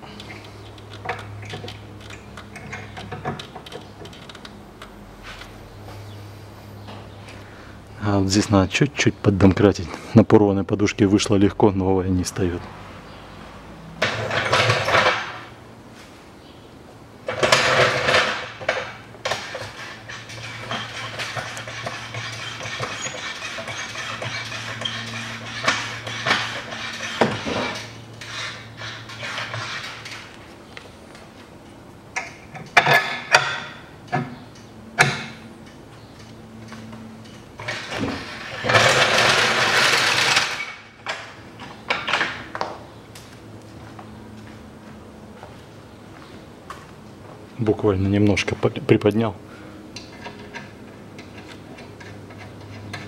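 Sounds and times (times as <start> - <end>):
loud mechanical noise: 17.2 - 30.4, 36.6 - 42.5
metal scraping: 17.3 - 30.4, 37.3 - 41.0.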